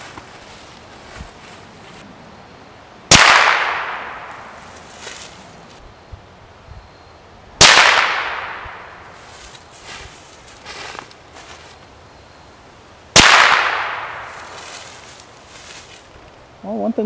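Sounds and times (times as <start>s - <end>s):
rifle shots with echo: 3.1s - 4.5s, 7.6s - 9.0s, 13.2s - 14.6s.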